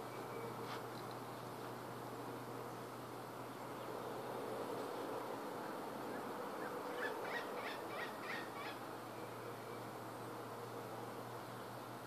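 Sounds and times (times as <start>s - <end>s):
woodpecker calling: 6.6s - 8.8s.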